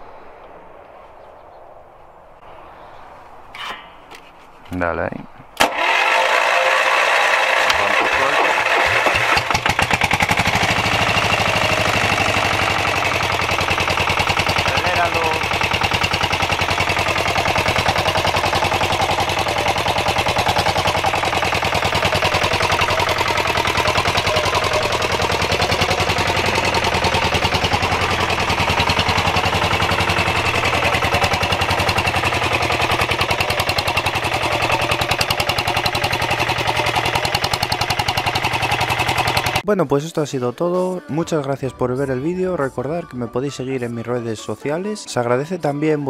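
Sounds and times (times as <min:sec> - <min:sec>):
diesel engine knocking: 0:05.8 - 0:39.6.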